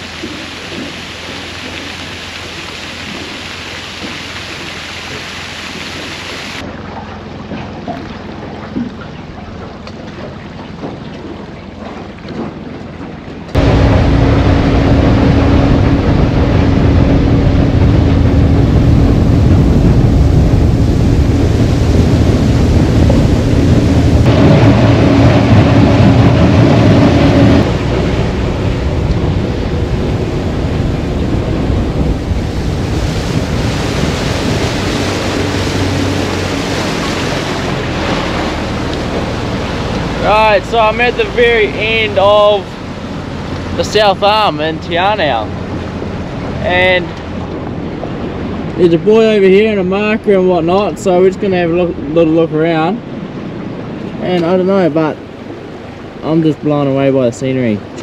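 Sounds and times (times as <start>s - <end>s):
outboard motor running: 0.0s - 52.2s
water rushing along hull: 0.0s - 58.0s
wind on microphone: 10.3s - 56.2s.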